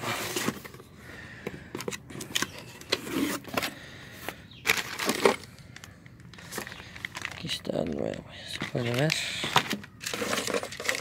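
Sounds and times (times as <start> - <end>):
cardboard box being opened: 0.0 - 0.9, 1.8 - 3.8, 8.6 - 11.0
plastic wrapping rustling: 4.6 - 11.0.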